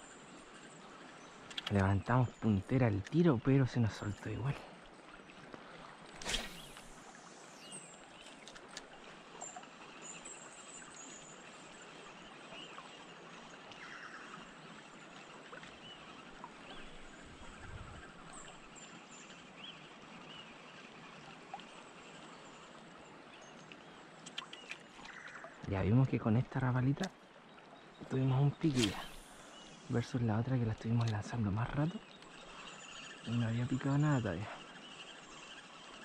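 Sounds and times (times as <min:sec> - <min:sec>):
river water flowing: 0:00.0 - 0:36.0
small clicks: 0:01.4 - 0:03.2, 0:08.2 - 0:09.5, 0:23.4 - 0:25.8, 0:30.8 - 0:31.4
faint high chirps: 0:06.2 - 0:08.4, 0:27.8 - 0:30.2.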